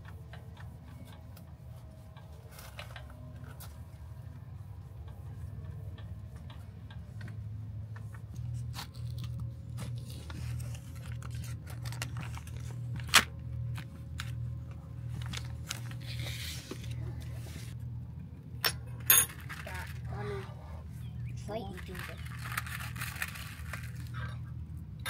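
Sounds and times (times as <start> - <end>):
steady low hum: 0.0 - 25.0
foil lid crinkling: 8.8 - 13.3, 21.8 - 24.2.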